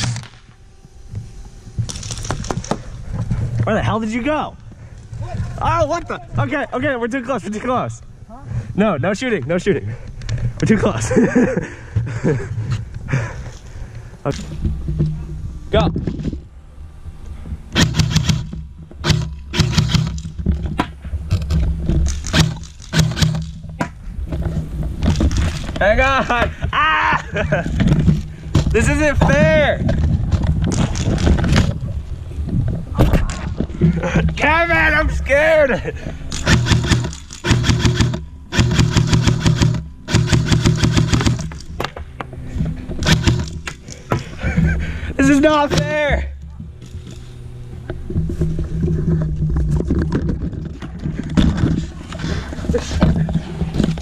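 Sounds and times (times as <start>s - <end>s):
airsoft rifle firing: 17.7s - 20.3s, 22.1s - 23.6s, 36.3s - 41.9s, 43.0s - 43.8s.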